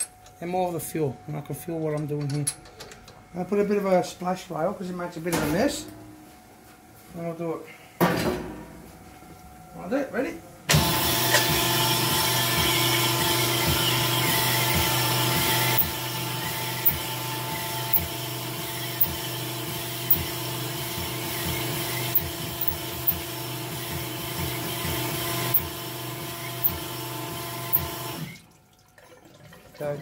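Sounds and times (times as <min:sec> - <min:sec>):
machine hum: 0:10.8 - 0:28.3.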